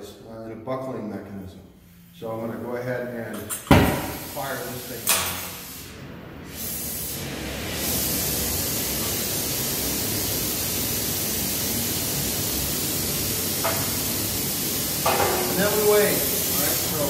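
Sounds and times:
torch flame hissing: 3.9s - 17.0s.

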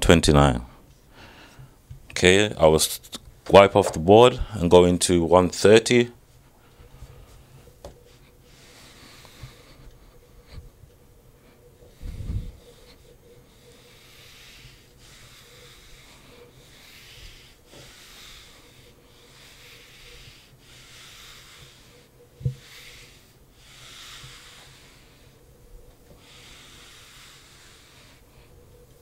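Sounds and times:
eraser swishing on whiteboard: 11.8s - 25.4s, 26.0s - 28.5s.

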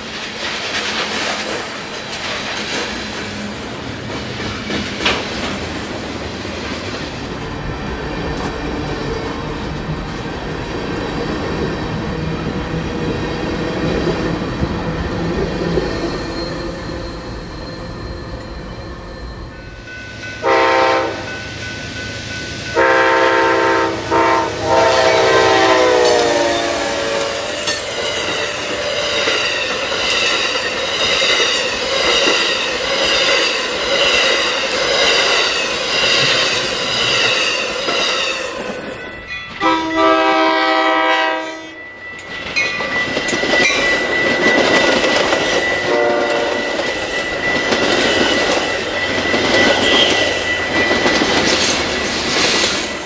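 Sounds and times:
train wheels clickety-clack: 0.0s - 16.6s, 25.9s - 39.7s, 42.1s - 53.0s
high bell-like tone: 15.4s - 23.2s, 38.3s - 39.9s, 41.5s - 52.2s
train air horn: 20.4s - 21.3s, 22.8s - 28.8s, 39.6s - 41.8s, 45.8s - 46.8s.

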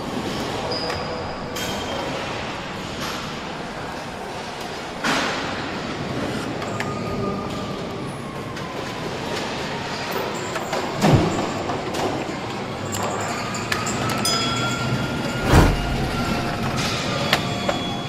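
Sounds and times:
machinery hum: 15.2s - 18.0s
heavy thumps: 15.3s - 16.8s.

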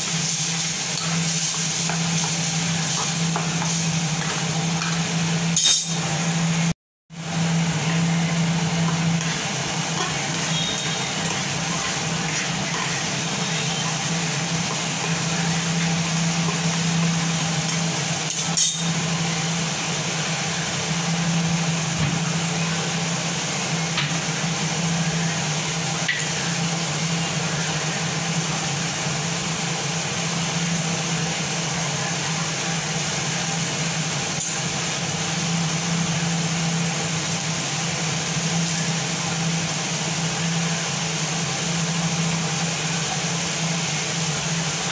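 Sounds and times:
mechanical hum with hiss: 0.0s - 44.9s.

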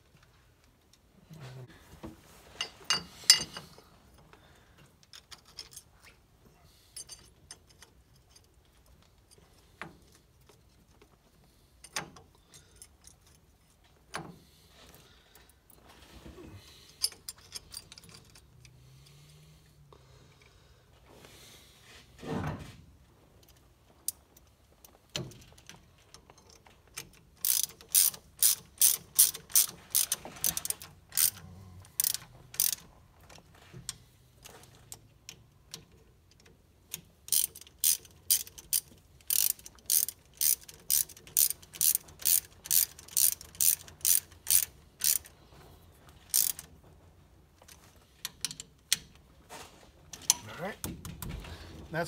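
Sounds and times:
hand ratchet clicking: 26.4s - 32.9s, 35.7s - 45.4s, 46.2s - 46.8s.

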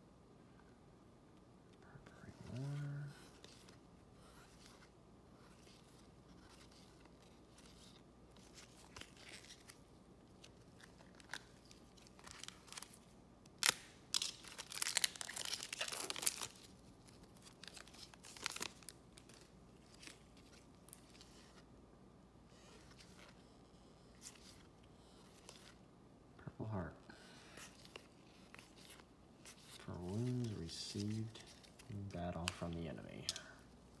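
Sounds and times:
cards rustling: 2.1s - 21.6s, 22.6s - 23.4s, 24.0s - 25.8s, 27.1s - 34.0s
card pack wrapper tearing: 10.4s - 21.2s
wrapper snap: 12.2s - 16.7s.

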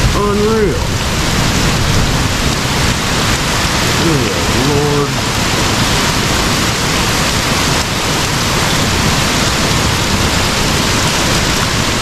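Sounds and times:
heavy rain pouring: 0.0s - 12.0s.

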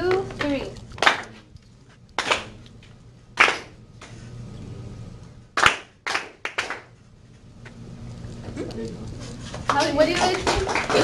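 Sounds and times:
students clapping in unison: 1.0s - 1.3s, 2.2s - 2.6s, 3.4s - 3.8s, 5.6s - 6.9s, 9.7s - 11.0s.

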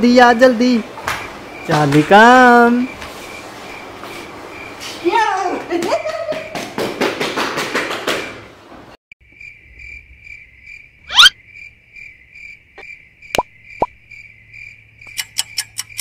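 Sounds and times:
crickets chirping sound effect: 0.0s - 5.7s, 9.2s - 16.0s.

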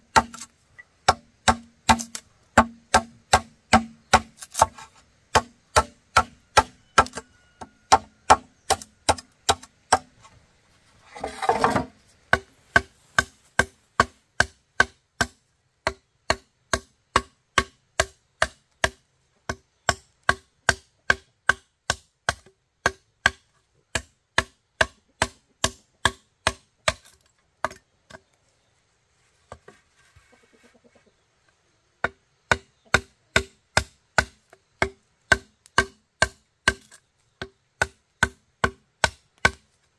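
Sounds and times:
tool knocking on bamboo: 1.0s - 10.1s.

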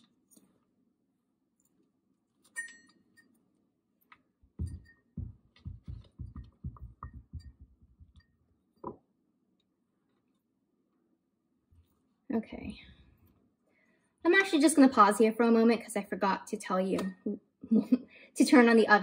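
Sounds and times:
metal bowl clink: 2.5s - 3.3s, 4.6s - 8.4s
soft low knocks: 4.5s - 8.2s.

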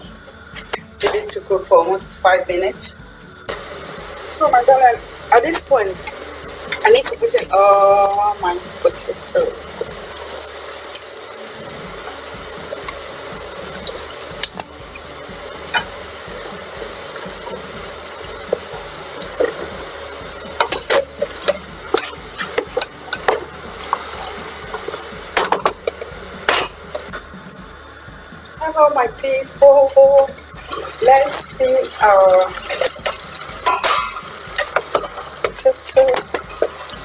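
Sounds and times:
steady low hiss: 0.0s - 37.0s
wooden spoon stirring: 30.4s - 37.0s.

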